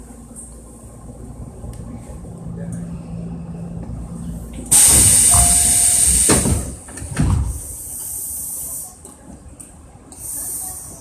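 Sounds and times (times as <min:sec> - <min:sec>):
compressed air hissing: 0:04.7 - 0:06.6.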